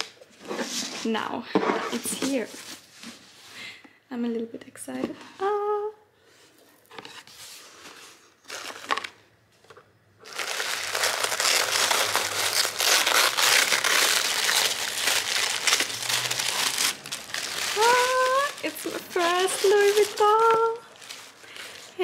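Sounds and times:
tissue paper crinkling: 0:10.2 - 0:22.0.

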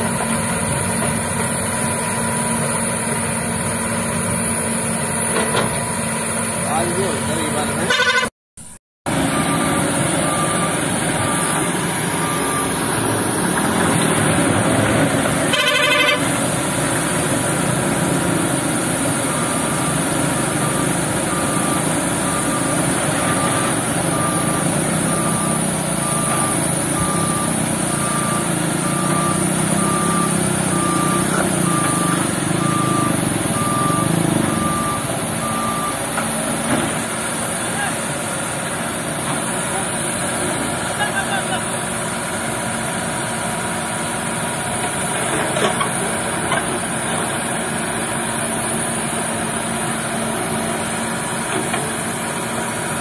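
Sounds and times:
heavy diesel engines running: 0:00.0 - 0:08.3, 0:09.1 - 0:53.0
reversing alarm beeping: 0:09.2 - 0:13.4, 0:19.0 - 0:36.2.

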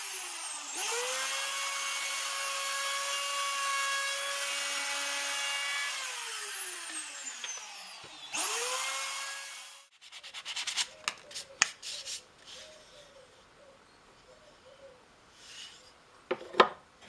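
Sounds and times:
motor spinning up: 0:00.0 - 0:02.3, 0:04.2 - 0:09.9
router motor winding down: 0:00.0 - 0:09.9
sandpaper rubbing on wood: 0:09.9 - 0:12.8.

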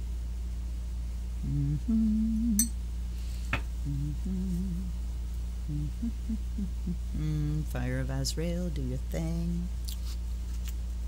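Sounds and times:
steady low hum: 0:00.0 - 0:11.0
woman humming a tune: 0:01.4 - 0:02.7, 0:03.8 - 0:05.0, 0:05.6 - 0:09.7.

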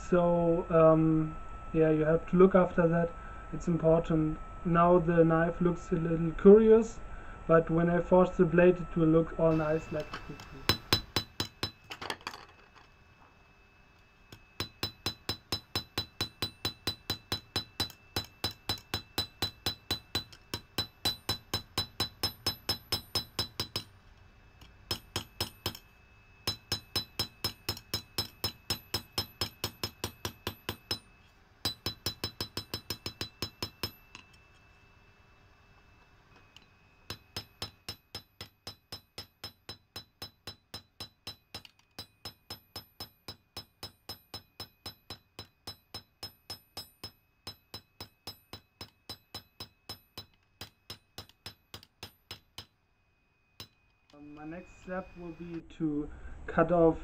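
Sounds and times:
hammer striking steel on anvil: 0:09.5 - 0:11.9, 0:14.3 - 0:23.9, 0:24.8 - 0:34.3, 0:37.1 - 0:52.8, 0:53.6 - 0:53.9.

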